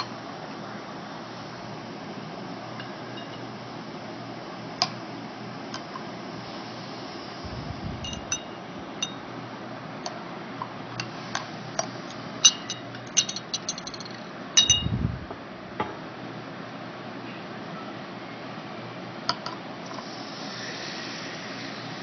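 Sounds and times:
light clinks on glass goblet: 8.0s - 9.2s, 12.4s - 14.9s.

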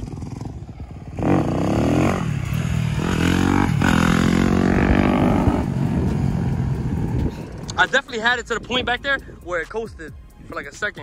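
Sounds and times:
dirt bike engine revving: 0.0s - 7.1s.

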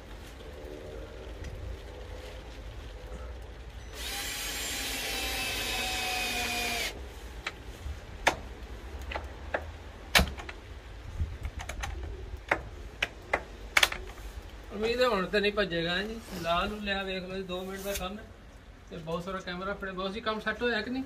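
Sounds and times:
power drill driving screw: 4.0s - 7.0s.

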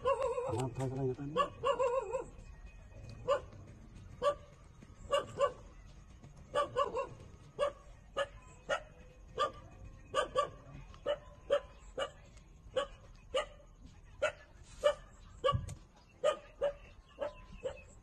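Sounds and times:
puppy yipping: 0.0s - 2.3s, 3.2s - 3.5s, 5.1s - 5.6s, 14.2s - 17.9s.

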